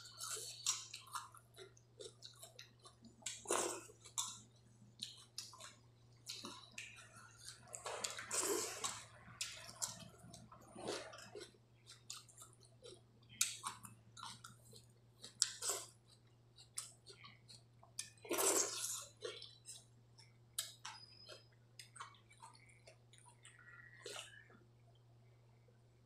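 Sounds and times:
wet chewing and lip smacks: 0:05.0 - 0:24.6.

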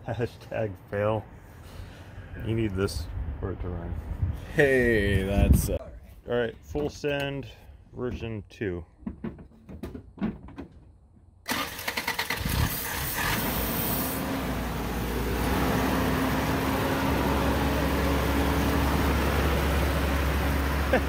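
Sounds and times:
starter motor cranking: 0:11.5 - 0:13.5
engine idling: 0:11.5 - 0:21.0.

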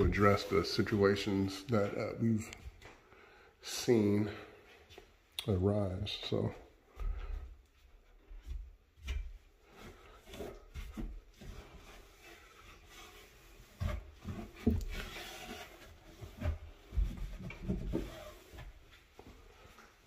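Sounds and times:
cloth wiping a surface: 0:00.0 - 0:02.1
light knocks and bumps: 0:15.8 - 0:19.8.

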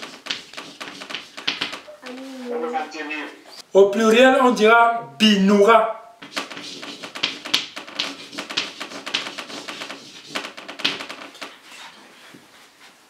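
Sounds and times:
chalk tapping and scratching on blackboard: 0:00.0 - 0:02.9, 0:06.2 - 0:13.0.

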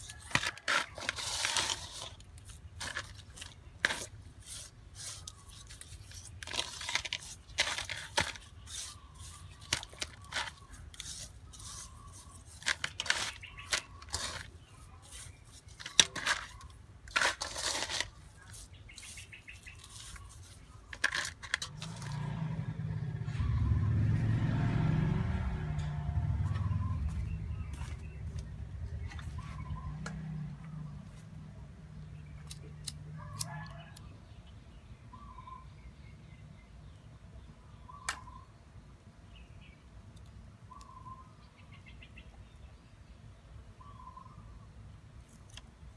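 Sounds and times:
salt scraping against metal bowl: 0:00.1 - 0:22.2
low rumble: 0:22.0 - 0:30.8.

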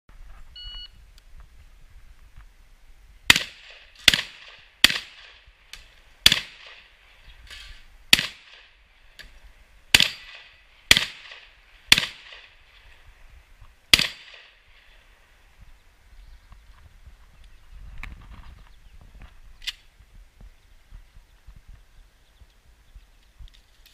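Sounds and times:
shot timer beep: 0:00.6 - 0:01.0
shotgun firing: 0:03.3 - 0:05.4, 0:06.2 - 0:06.9, 0:08.1 - 0:08.7, 0:09.9 - 0:12.6, 0:13.9 - 0:14.6.

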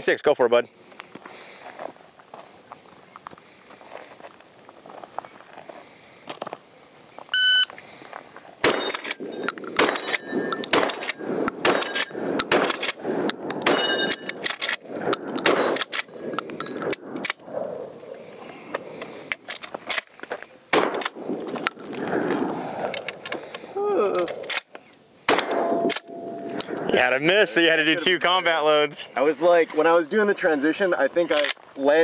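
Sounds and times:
shot timer beep: 0:07.4 - 0:07.7
shotgun shots: 0:08.6 - 0:16.1, 0:20.7 - 0:21.6, 0:25.3 - 0:26.6
steel plates ringing: 0:25.4 - 0:26.7.

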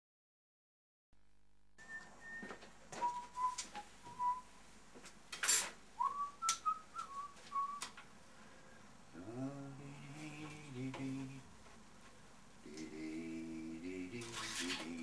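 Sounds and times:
man whistling: 0:01.8 - 0:04.5, 0:06.0 - 0:07.9
rasping scrape: 0:14.2 - 0:15.0.

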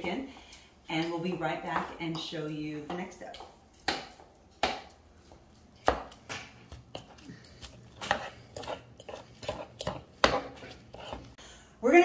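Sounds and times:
metal forks scraping plastic board: 0:08.0 - 0:11.3.

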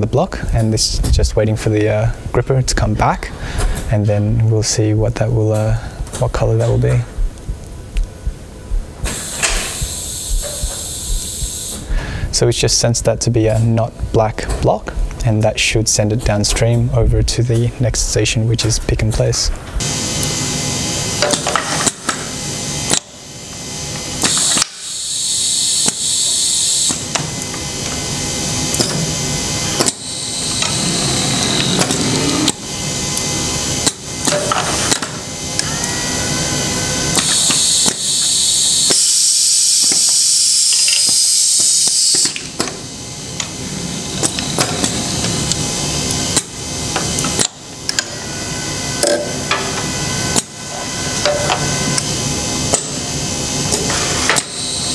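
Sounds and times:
compressed air hissing: 0:08.3 - 0:12.4, 0:24.2 - 0:27.1, 0:29.2 - 0:33.8, 0:36.6 - 0:42.5
pneumatic cylinders clacking: 0:09.0 - 0:11.9, 0:21.2 - 0:22.3, 0:24.2 - 0:28.0, 0:28.7 - 0:36.0, 0:37.1 - 0:42.8, 0:44.1 - 0:48.2, 0:49.0 - 0:52.1, 0:53.7 - 0:54.9.

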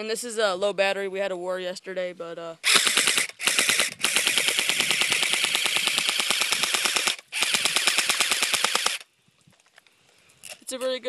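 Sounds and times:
airsoft gun firing full-auto: 0:02.6 - 0:09.1.

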